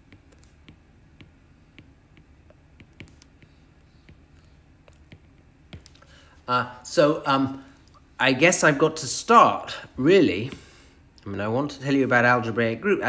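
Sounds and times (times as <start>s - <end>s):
stylus tapping on tablet screen: 0.0s - 6.0s
low room hiss: 0.0s - 13.0s.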